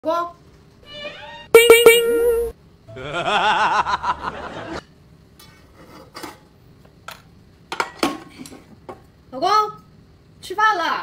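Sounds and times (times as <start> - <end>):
ringing tone: 1.6 - 2.5
person laughing: 3.0 - 4.4.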